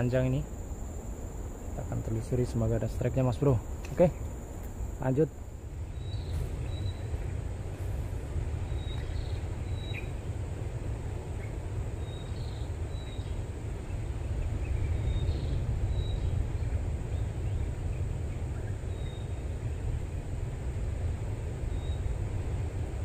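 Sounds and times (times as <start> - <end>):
wind rumble on microphone: 0.0 - 23.0
high bird chirps: 5.9 - 7.4, 8.6 - 10.2.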